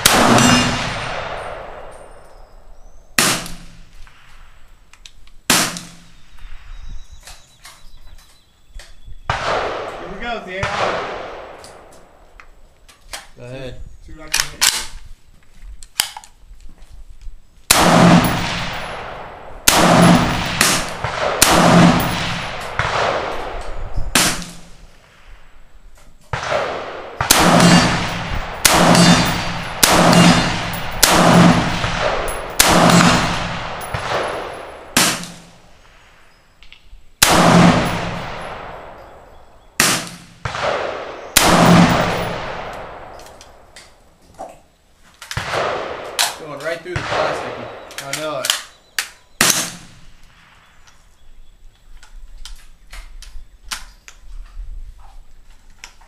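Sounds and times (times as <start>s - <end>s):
rifle shots ringing under metal roof: 0.0s - 4.6s, 5.5s - 6.4s, 9.2s - 12.4s, 17.7s - 25.6s, 26.2s - 36.4s, 37.2s - 44.2s, 45.2s - 51.5s.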